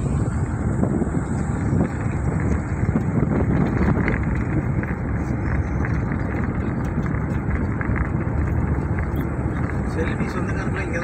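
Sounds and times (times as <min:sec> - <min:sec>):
vehicle running noise: 0:00.0 - 0:11.0.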